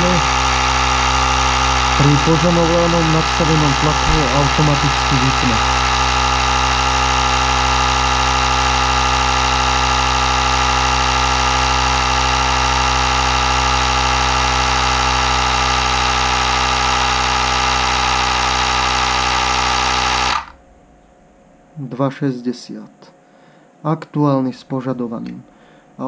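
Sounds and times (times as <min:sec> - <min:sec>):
small air compressor running: 0:00.0 - 0:20.6.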